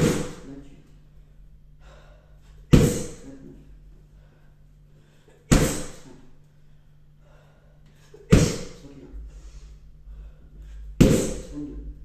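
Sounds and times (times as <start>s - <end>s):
kicks smacking a pad: 0.0s - 0.4s, 2.7s - 3.2s, 5.5s - 6.0s, 8.3s - 8.8s, 11.0s - 11.5s.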